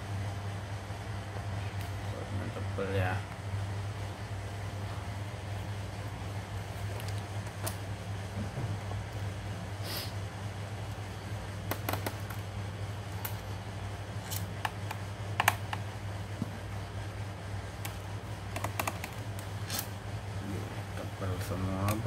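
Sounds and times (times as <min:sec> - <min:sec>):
steady low hum: 0:00.0 - 0:22.0
screwdriver clicking on plastic: 0:14.3 - 0:15.8, 0:17.8 - 0:19.9.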